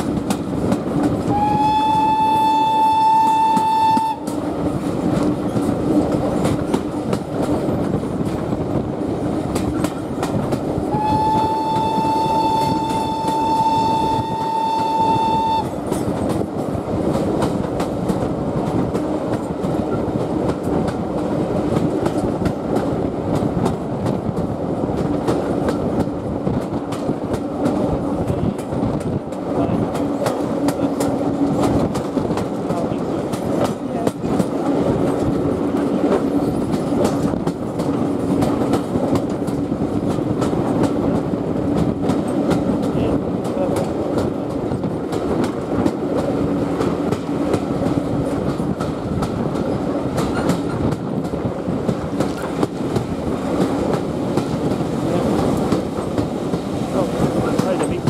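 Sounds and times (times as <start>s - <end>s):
train carriages clickety-clack: 0.0s - 58.0s
steam locomotive whistle: 1.3s - 4.4s, 10.9s - 15.8s.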